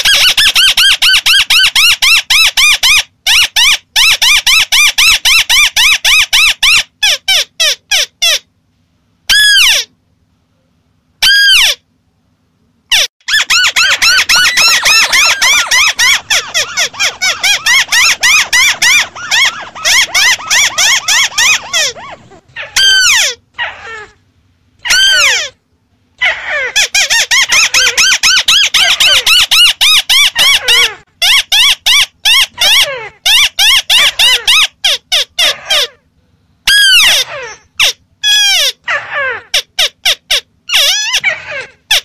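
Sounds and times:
bird calling downward-sliding notes: 0:13.3 - 0:23.2.

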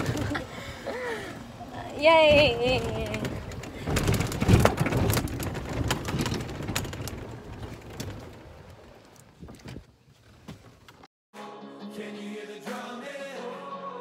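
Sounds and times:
golf cart rumbling and rattling: 0:00.0 - 0:11.1.

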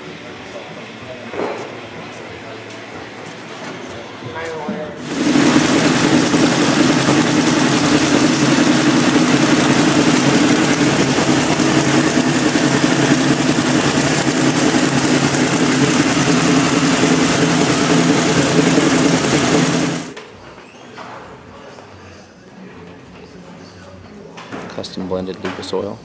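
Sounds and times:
race engine idling: 0:05.0 - 0:20.2.

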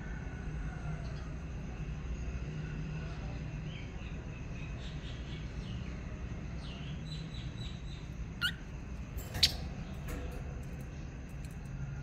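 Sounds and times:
lovebirds chirping: 0:06.7 - 0:11.0.

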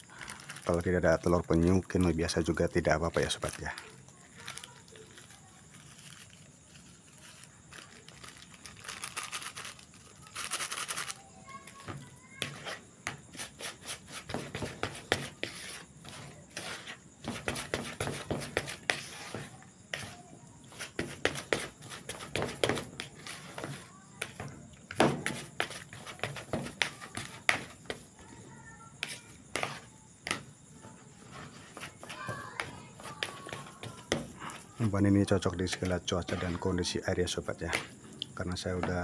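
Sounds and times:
spatula scraping a plastic bowl: 0:11.8 - 0:28.1, 0:29.0 - 0:34.9, 0:35.7 - 0:36.7.

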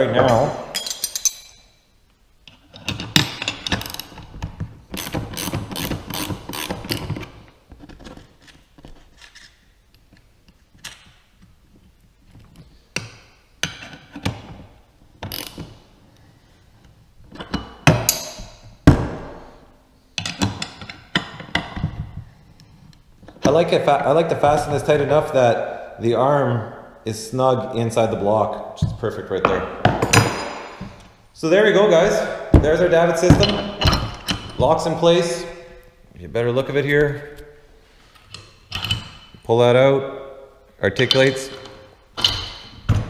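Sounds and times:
wrenches clicking on metal: 0:05.0 - 0:07.3, 0:41.0 - 0:42.7.

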